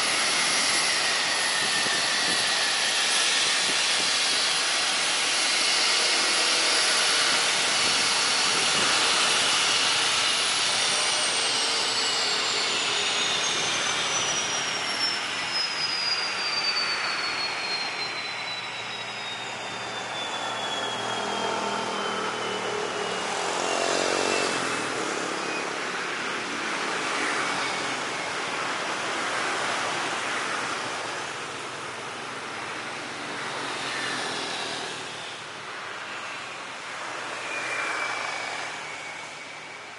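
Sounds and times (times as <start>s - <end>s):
turbine winding down: 0.0s - 28.5s.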